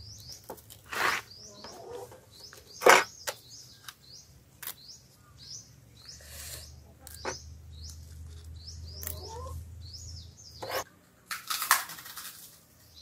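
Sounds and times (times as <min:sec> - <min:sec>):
small bird chirping: 0:00.0 - 0:10.9.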